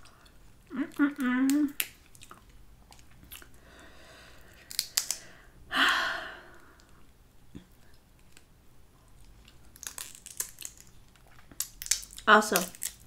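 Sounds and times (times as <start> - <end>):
crab shell crackling: 0.0 - 3.6, 4.2 - 5.5, 9.1 - 13.0
crab shell snapping: 1.5 - 2.3, 4.5 - 5.3, 9.7 - 13.0.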